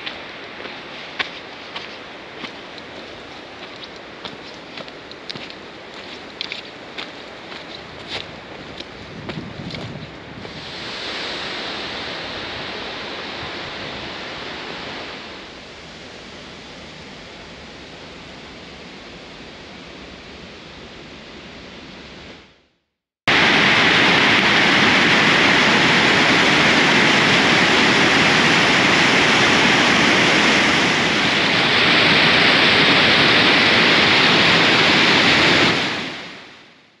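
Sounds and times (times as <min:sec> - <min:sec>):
river rapids rushing: 0:00.0 - 0:09.0, 0:23.3 - 0:36.6
steady rushing noise: 0:00.0 - 0:22.6, 0:23.3 - 0:37.0.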